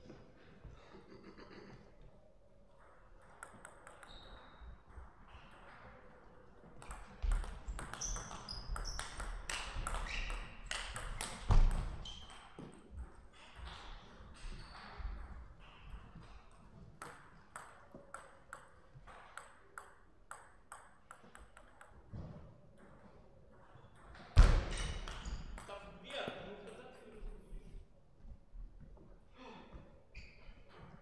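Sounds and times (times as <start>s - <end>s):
shoes squeaking on floor: 4.0s - 4.7s, 7.9s - 9.3s, 9.9s - 10.8s, 12.0s - 12.8s, 30.1s - 31.0s.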